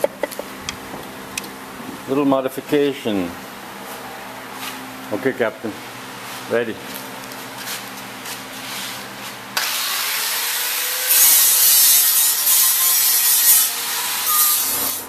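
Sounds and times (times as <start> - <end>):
angle grinder grinding: 9.6 - 15.0.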